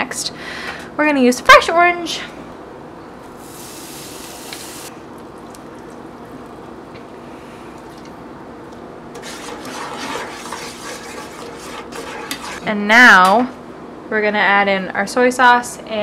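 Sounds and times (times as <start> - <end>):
juice hissing in hot pan: 3.4 - 4.9
spatula scraping pan: 9.2 - 12.7.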